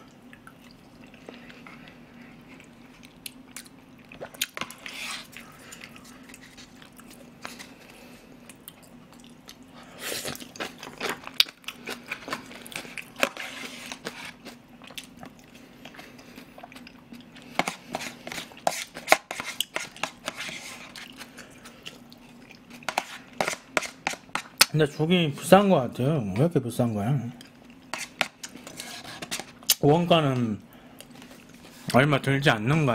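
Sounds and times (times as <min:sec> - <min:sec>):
chewing and wet mouth sounds: 0:00.0 - 0:18.9, 0:20.8 - 0:24.7
faint steady hum: 0:00.0 - 0:32.9
spoon scraping plastic container: 0:13.2 - 0:14.4, 0:17.6 - 0:21.3, 0:22.9 - 0:24.5, 0:27.9 - 0:29.6.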